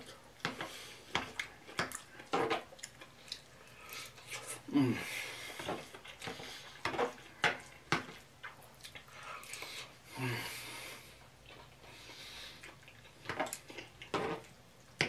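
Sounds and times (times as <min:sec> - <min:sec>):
chewing: 0:00.1 - 0:04.7, 0:05.5 - 0:09.9, 0:11.4 - 0:15.0
low humming voice: 0:04.7 - 0:05.2.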